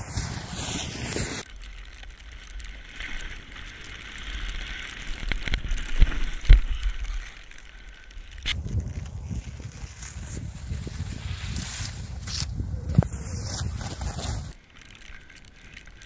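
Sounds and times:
snowboard scraping over snow: 0.0 - 1.5, 8.5 - 14.6
wind buffeting microphone: 8.4 - 14.6.

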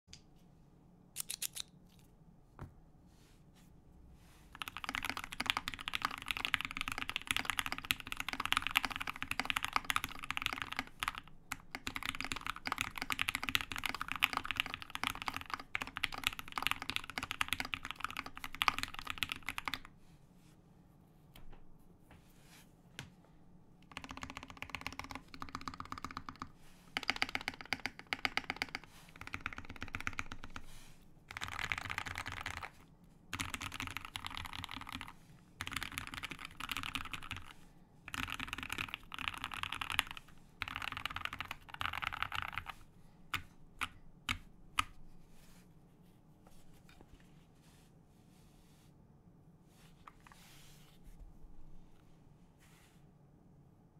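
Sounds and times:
fast typing on mechanical keyboard: 4.5 - 19.9, 23.8 - 30.6, 31.3 - 44.9.

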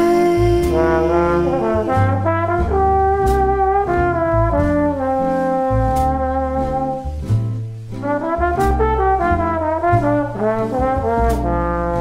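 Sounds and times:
sustained low bass notes: 0.0 - 12.0
trombone slow melody: 0.0 - 12.0.

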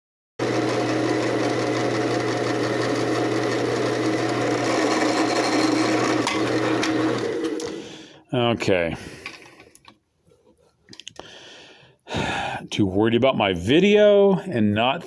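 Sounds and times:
drill press boring wood: 0.4 - 8.1.

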